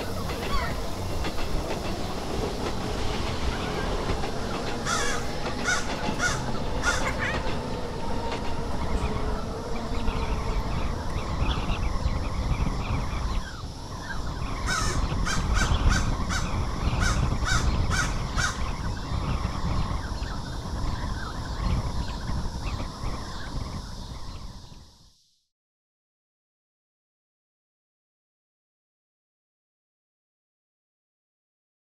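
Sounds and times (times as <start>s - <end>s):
rumbling wind: 0.0s - 25.1s
crows cawing: 4.8s - 7.6s, 14.7s - 18.6s.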